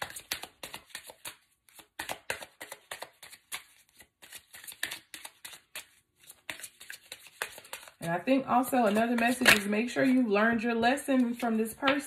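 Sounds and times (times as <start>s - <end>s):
cards being shuffled: 0.0s - 8.0s, 8.8s - 10.2s.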